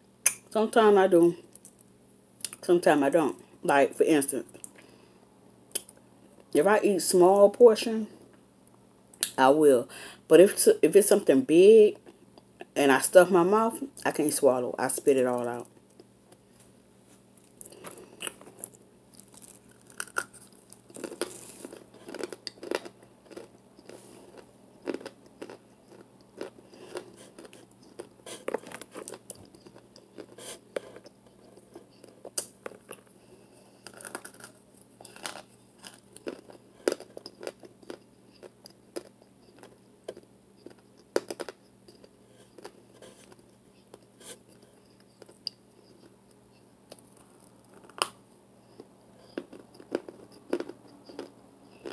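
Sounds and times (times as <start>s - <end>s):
crunchy chewing: 17.3s - 51.9s.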